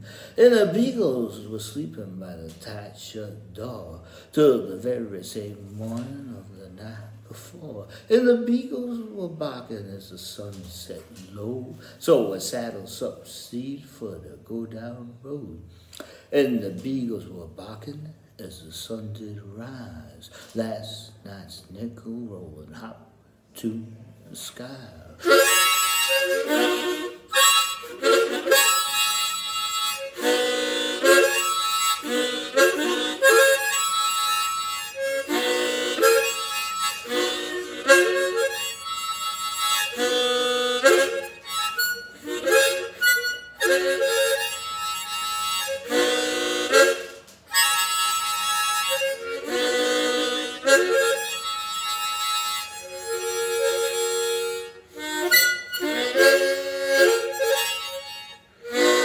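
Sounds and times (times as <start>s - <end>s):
harmonica playing chords: 25.1s - 59.0s.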